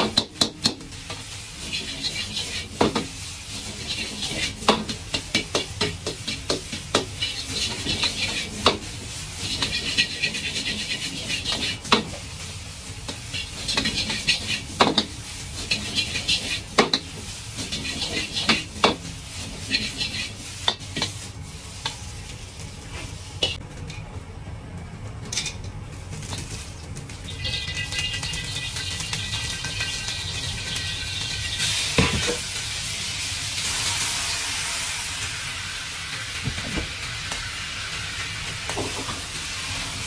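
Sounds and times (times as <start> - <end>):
ladle scraping a wok: 0.0 - 23.6, 26.2 - 35.2
rice sizzling in a wok: 0.0 - 40.0.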